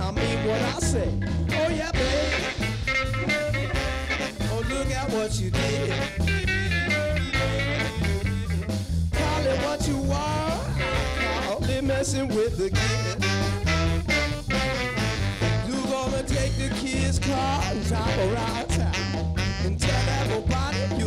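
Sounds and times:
horn section: 0:00.0 - 0:21.0
live ska band playing: 0:00.0 - 0:21.0.

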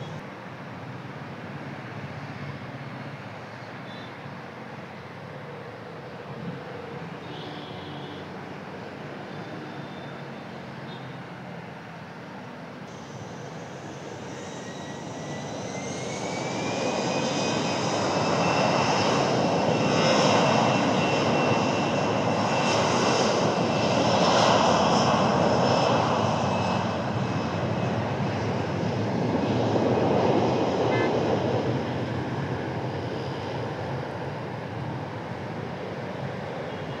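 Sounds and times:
jet engines whining: 0:12.9 - 0:37.0.

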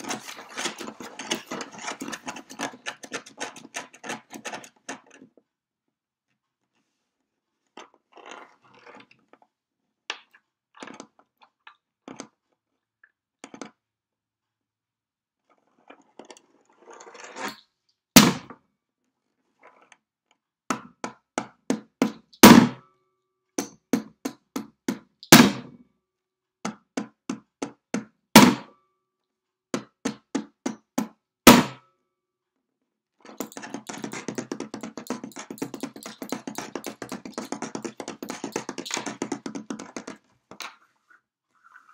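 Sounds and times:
metal rings tapping on wood: 0:33.4 - 0:40.2.

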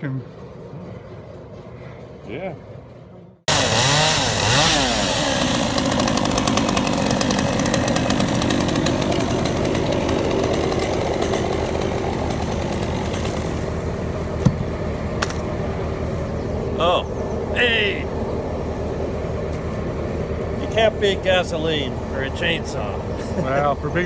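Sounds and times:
chainsaw cutting logs: 0:03.5 - 0:15.5.

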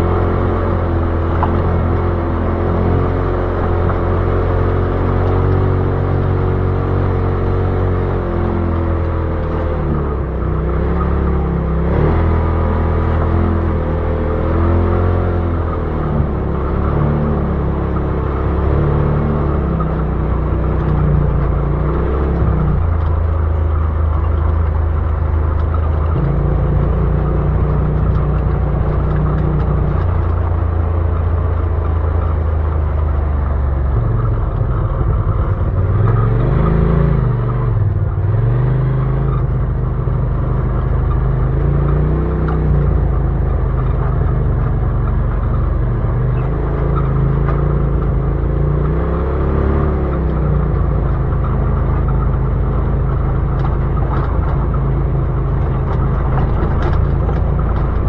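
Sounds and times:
utility vehicle engine running: 0:00.0 - 0:58.0.

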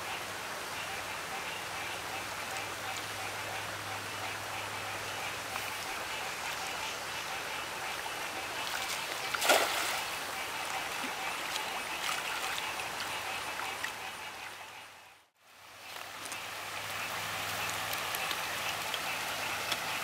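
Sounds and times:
creek water running over rocks: 0:00.0 - 0:14.6, 0:15.4 - 0:20.0
net splashing into water: 0:09.4 - 0:10.0.

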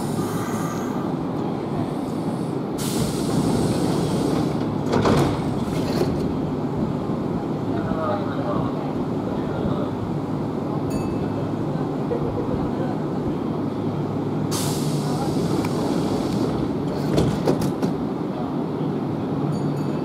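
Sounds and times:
compressed air hiss: 0:01.8 - 0:04.6, 0:14.5 - 0:16.5.

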